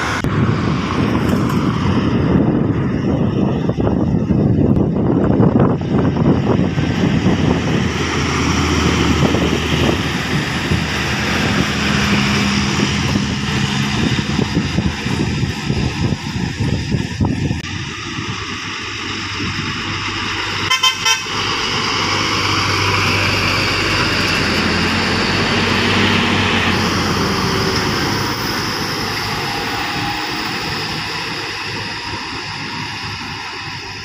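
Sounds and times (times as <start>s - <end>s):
diesel engines passing: 0.0s - 34.0s
vehicle horn toots: 20.6s - 21.5s.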